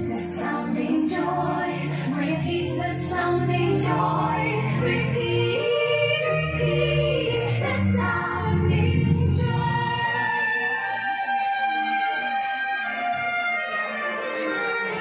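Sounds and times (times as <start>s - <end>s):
choir singing held notes: 0.0s - 10.2s.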